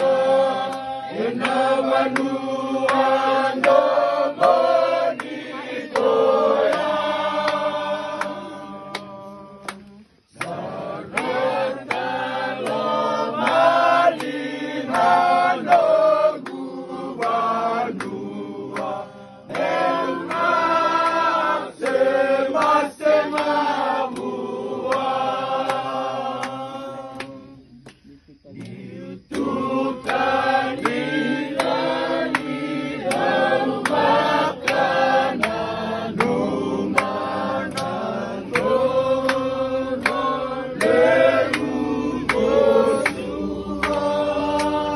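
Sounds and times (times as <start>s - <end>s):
group of voices singing: 0.0s - 44.9s.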